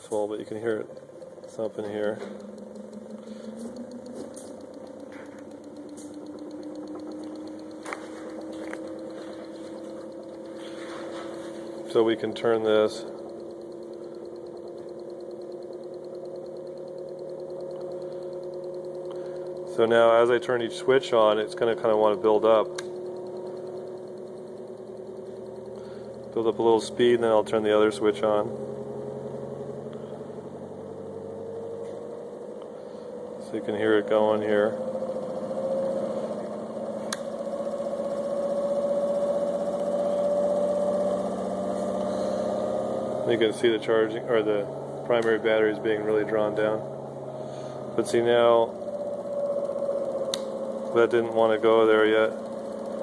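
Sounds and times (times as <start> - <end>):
sharp click: 0.0 - 28.6, 31.5 - 46.9, 47.7 - 53.0
motor humming with pulsing flutter: 0.0 - 53.0.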